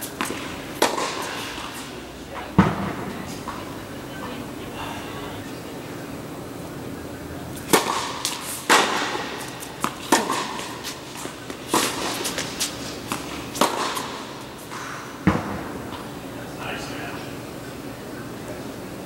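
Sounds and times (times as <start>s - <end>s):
tennis ball bouncing on court: 0.0s - 1.7s, 7.6s - 14.4s
tennis ball struck by rackets: 0.0s - 1.8s, 7.6s - 15.8s.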